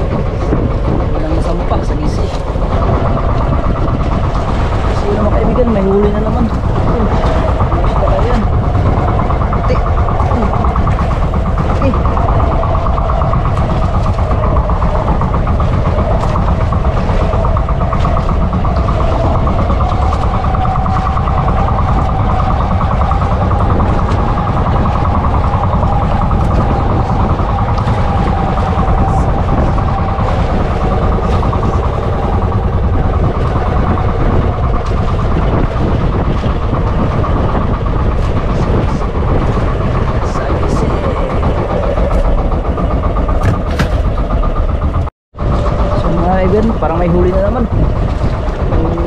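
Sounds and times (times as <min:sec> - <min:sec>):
boat engine running: 0:00.0 - 0:49.0.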